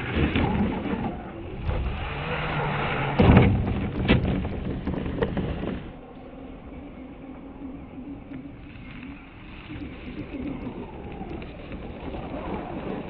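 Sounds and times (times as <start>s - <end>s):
tyres churning snow: 0.0s - 6.1s, 7.9s - 13.0s.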